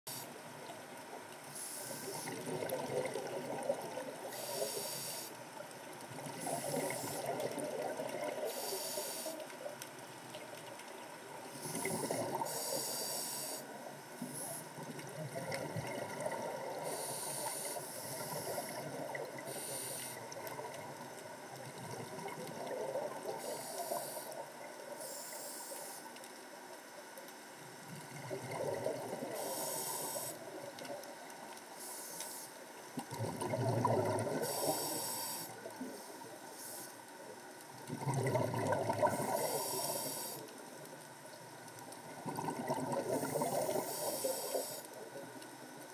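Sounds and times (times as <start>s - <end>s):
exhaled bubbles rushing: 2.2s - 4.2s, 14.8s - 16.8s, 28.0s - 29.4s, 33.0s - 34.5s, 37.8s - 39.8s, 42.0s - 43.9s.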